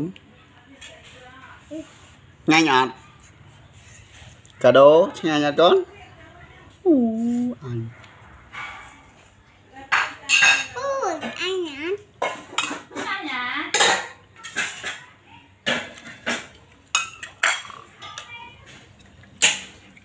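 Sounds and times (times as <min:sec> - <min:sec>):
fork clinking on ceramic plate: 0:15.8 - 0:18.3.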